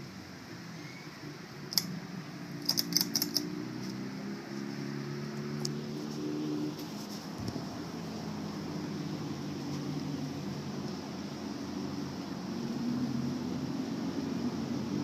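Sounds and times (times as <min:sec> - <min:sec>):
sharp clicks: 0:01.7 - 0:01.9, 0:02.6 - 0:04.0.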